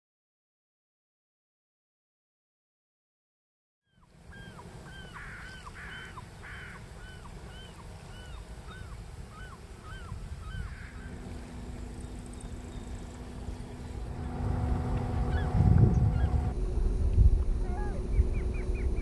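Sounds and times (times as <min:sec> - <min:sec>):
birds calling: 0:03.9 - 0:16.6
harsh raspy bird calls: 0:04.3 - 0:14.0
steady low hum: 0:10.3 - 0:19.0
low rumble: 0:10.7 - 0:19.0.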